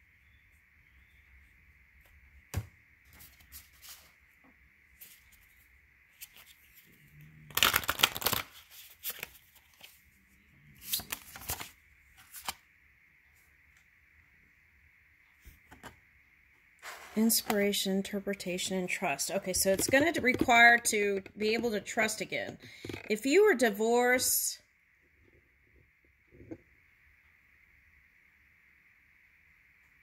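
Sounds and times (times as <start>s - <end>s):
cards being shuffled: 6.1s - 6.9s, 7.5s - 10.0s, 10.8s - 12.6s.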